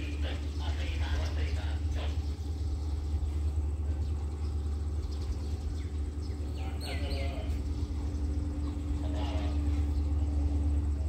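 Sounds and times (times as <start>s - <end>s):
diesel locomotive rumble: 0.0s - 11.0s.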